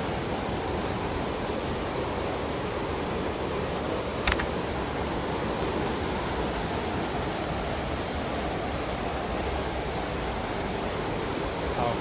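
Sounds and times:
rushing river water: 0.0 - 12.0.

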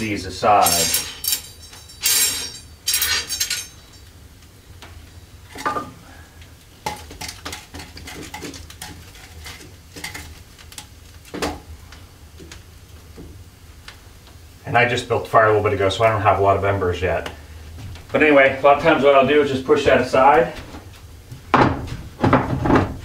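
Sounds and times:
iron grates clanking: 0.0 - 4.1
knocks of stirred embers: 0.0 - 23.0
wood fire crackling: 0.0 - 23.0.

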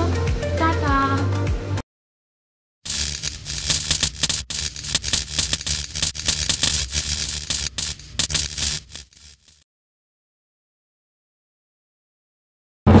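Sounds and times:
crackling hissing sparks: 2.9 - 9.6.

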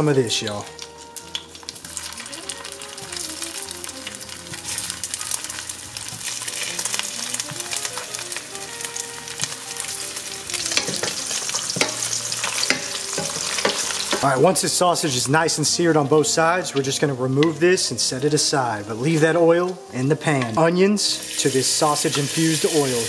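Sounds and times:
sausage sizzling in a pan: 0.0 - 23.0
tongs clicking: 10.6 - 14.3.

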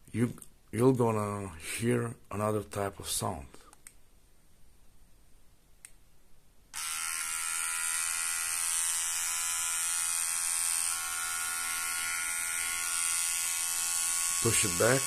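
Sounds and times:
electric trimmer buzzing: 6.7 - 15.0.

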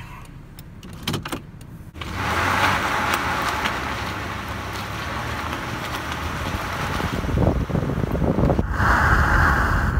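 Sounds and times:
wind noise: 6.2 - 9.9.

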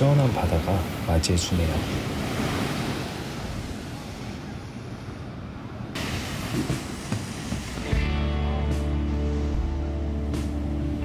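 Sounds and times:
waves breaking on beach: 0.0 - 8.1.

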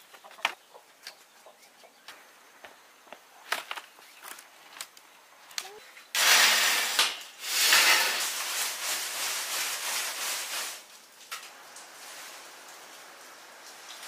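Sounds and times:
tea leaves rustling on bamboo tray: 6.2 - 11.1, 11.7 - 14.0.

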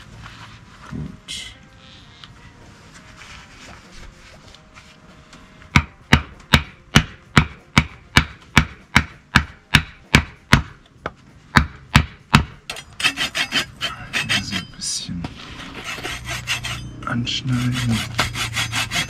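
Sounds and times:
hammer knocking on wood: 5.8 - 10.7, 11.6 - 12.6.

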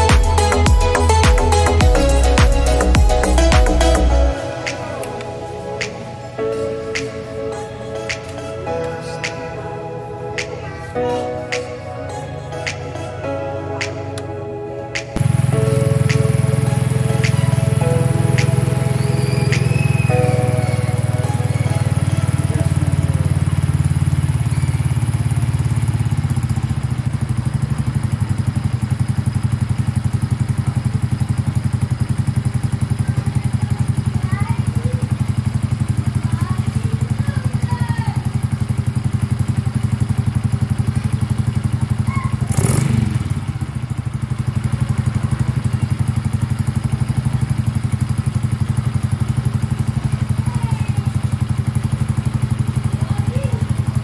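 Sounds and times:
motorcycle engine idling: 15.2 - 54.0.

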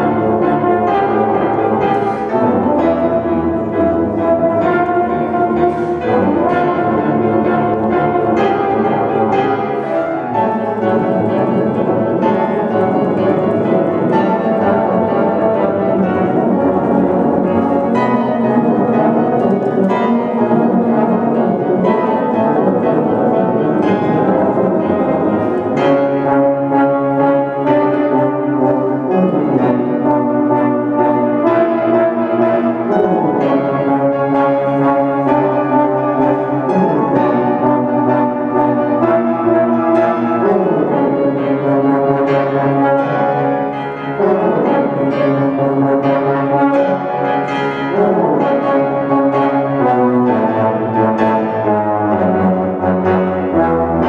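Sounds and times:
tuba and euphonium duet: 0.0 - 54.0.

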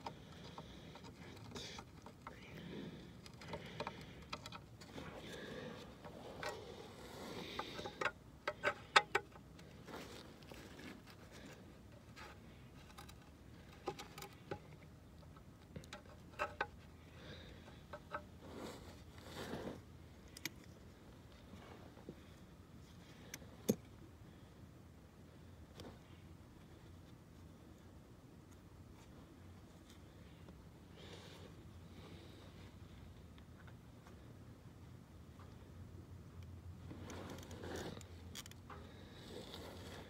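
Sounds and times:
soft rustling: 9.6 - 14.6.

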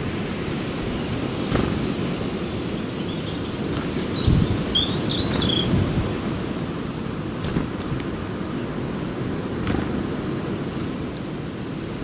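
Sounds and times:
small birds chirping: 1.5 - 8.8, 10.8 - 12.0.

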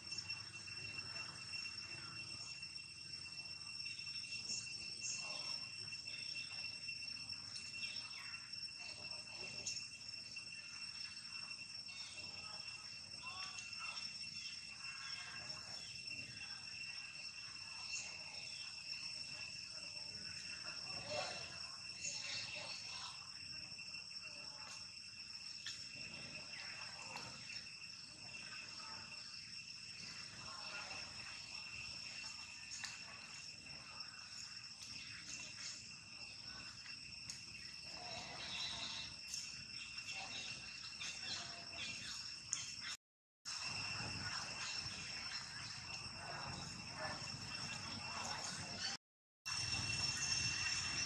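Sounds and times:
insects droning: 0.0 - 51.0.

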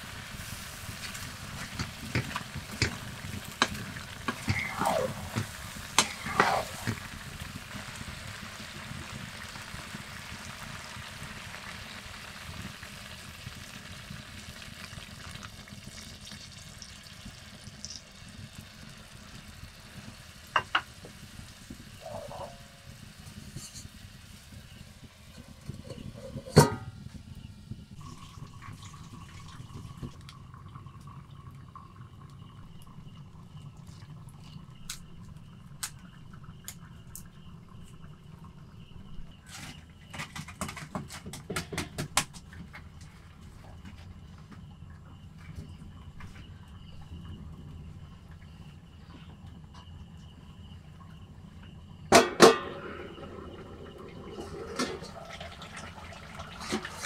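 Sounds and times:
water pouring: 0.0 - 7.5, 15.0 - 18.2, 28.0 - 34.7, 52.7 - 57.0
curry sizzling in a pan: 0.0 - 26.6
spatula scraping a pan: 3.6 - 7.1, 23.5 - 24.0
metal lid clank: 25.8 - 27.0, 52.1 - 53.3.

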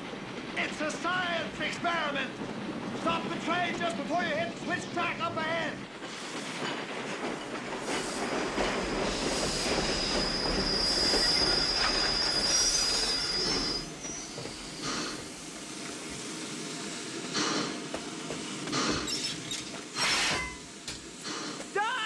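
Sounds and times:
steam locomotive running: 0.0 - 22.0
wheels squealing on rails: 6.1 - 15.8, 18.7 - 22.0.

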